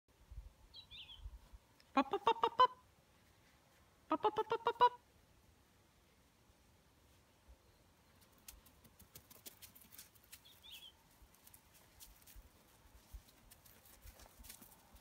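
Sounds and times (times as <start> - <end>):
light ticks and pattering: 8.1 - 15.0.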